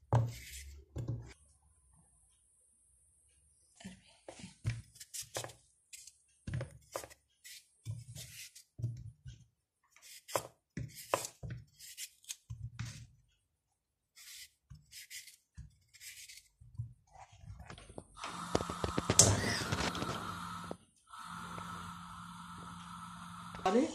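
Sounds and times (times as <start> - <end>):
knife slicing potato: 10.0 - 12.6, 14.1 - 16.6.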